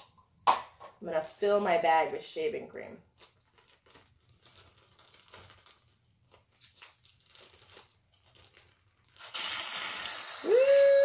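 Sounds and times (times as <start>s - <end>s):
plastic bag crinkling: 3.0s - 9.4s
shaving cream can hissing: 9.2s - 11.0s.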